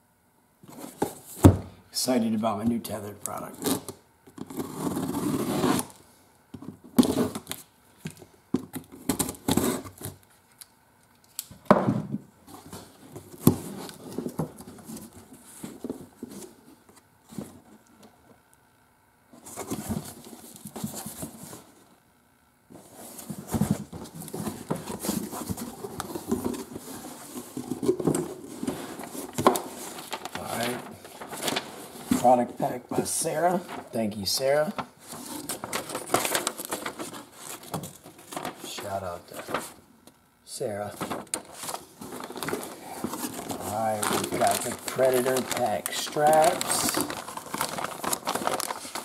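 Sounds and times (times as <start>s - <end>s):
cardboard flaps scraping: 22.7s - 34.0s, 34.6s - 39.8s, 40.7s - 49.0s
plastic packaging rustling: 22.8s - 39.9s, 40.6s - 49.0s.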